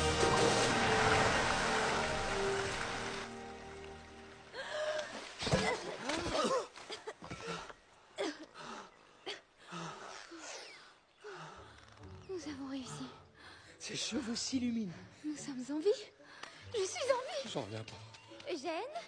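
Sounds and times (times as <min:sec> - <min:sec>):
film score music: 0:00.0 - 0:05.1, 0:11.0 - 0:19.0.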